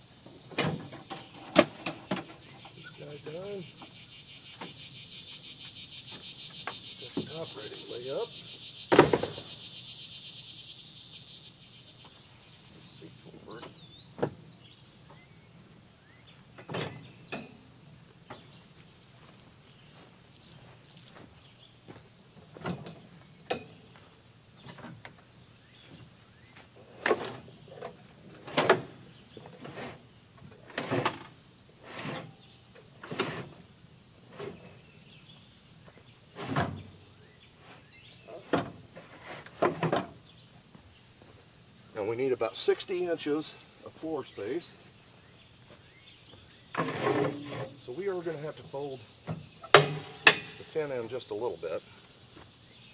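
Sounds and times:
cargo bed parts knocking and rattling: 22.4 - 23.8, 36.4 - 37.0, 38.3 - 40.4, 49.2 - 50.8.

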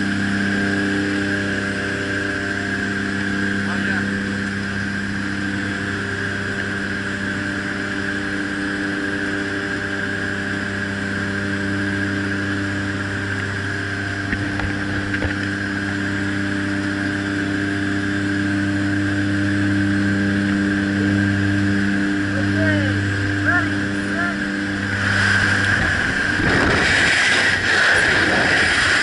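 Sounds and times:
turboprop engines droning: 0.0 - 29.0
wind rushing: 25.2 - 29.0.

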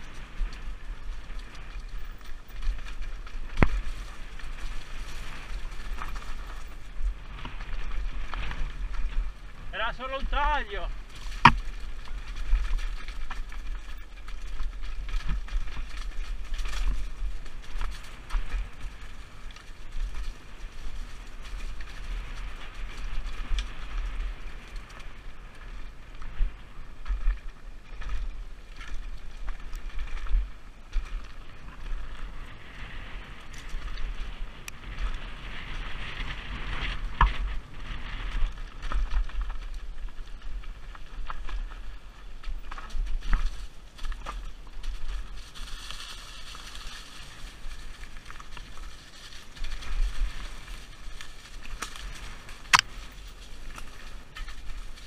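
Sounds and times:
bike tyres rolling over dirt: 0.0 - 55.0
wind buffeting microphone: 0.0 - 55.0
bike knocks and rattles: 11.1 - 23.9.

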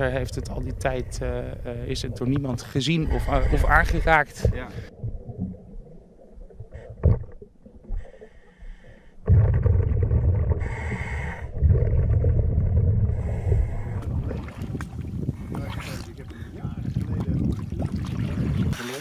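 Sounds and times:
regulator bubbles rumbling: 9.2 - 18.8.

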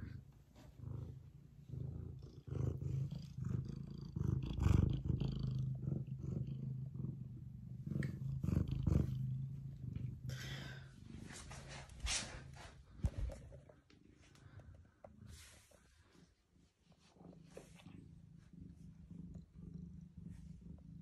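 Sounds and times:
cat purring: 0.0 - 21.0
brushing and bumping noises: 11.1 - 13.7.

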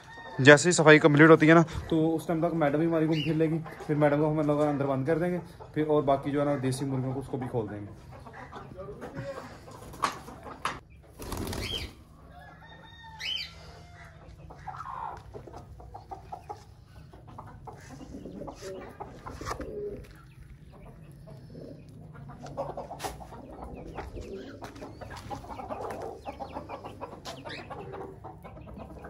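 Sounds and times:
birds chirping: 0.0 - 29.0
chickens clucking: 0.0 - 29.0
wings flapping: 9.8 - 12.0.

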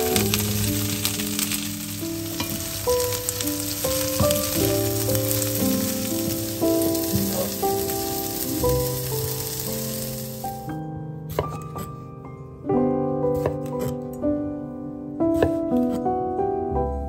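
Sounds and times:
vegetables sizzling in butter: 0.0 - 10.7
wooden spatula turning food: 0.0 - 10.7
soft background music: 0.0 - 17.0.

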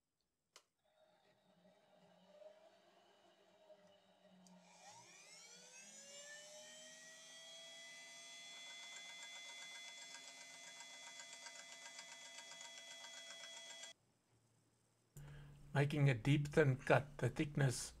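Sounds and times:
rotary tool whine: 4.5 - 13.9.

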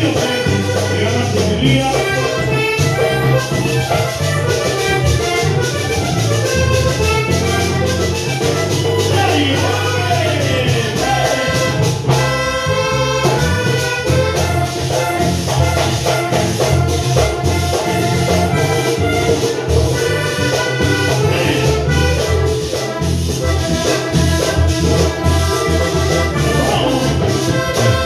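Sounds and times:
latin dance music with brass: 0.0 - 28.0.

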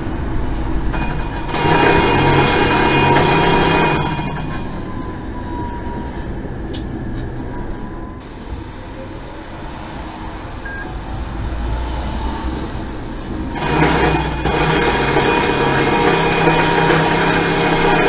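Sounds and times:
tram warning bell ringing: 0.0 - 9.6, 13.4 - 18.0
tram rumbling along rails: 0.0 - 18.0.

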